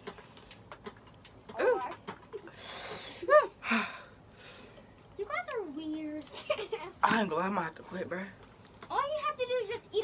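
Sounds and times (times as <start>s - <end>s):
person gasping and hissing breath: 2.5s - 4.8s.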